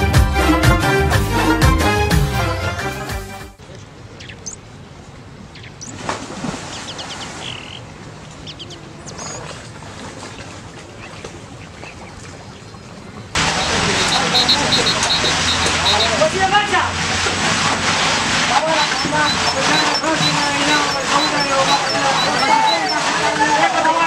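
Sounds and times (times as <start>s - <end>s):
flowing canal water: 3.9s - 24.0s
birds chirping: 4.1s - 4.7s, 6.7s - 9.4s, 11.6s - 16.2s, 18.6s - 23.5s.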